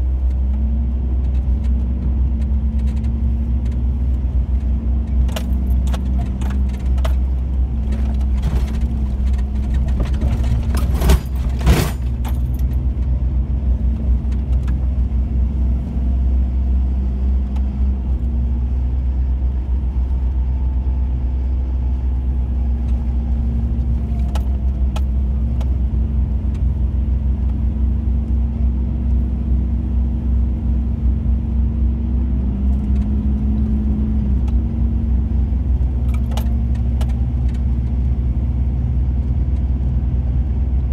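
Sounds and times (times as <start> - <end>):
car engine running: 0.0 - 40.9
jangling and rattling: 7.9 - 12.9.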